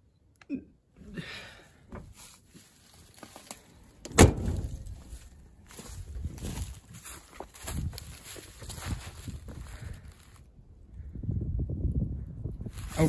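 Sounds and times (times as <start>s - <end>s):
faint clicks and rustles: 1.9s - 10.5s
truck door slamming: 4.0s - 5.0s.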